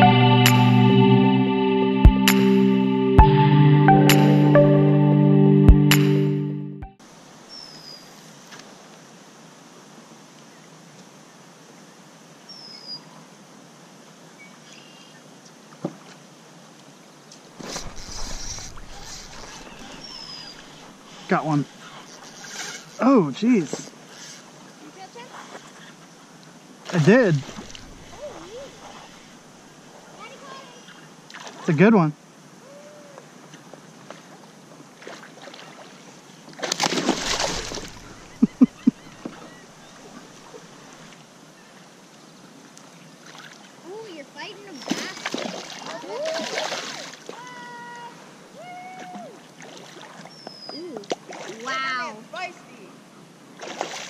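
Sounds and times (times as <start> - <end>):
faint open-water ambience: 0.0 - 54.0
fish splashing at surface: 17.6 - 20.9, 36.6 - 38.5
rough buffeting noise: 17.6 - 23.0, 27.0 - 29.3, 37.2 - 39.4.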